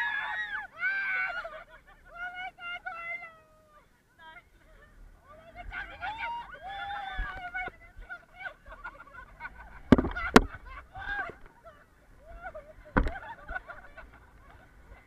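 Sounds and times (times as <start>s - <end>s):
low vehicle rumble: 0.0s - 15.0s
people laughing and shrieking: 0.0s - 15.0s
sharp knocks: 9.9s - 10.6s.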